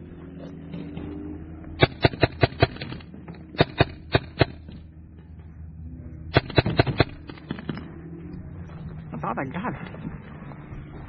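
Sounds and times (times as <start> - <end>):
paintball marker shots: 1.8 - 3.0, 3.6 - 4.8, 6.3 - 7.8.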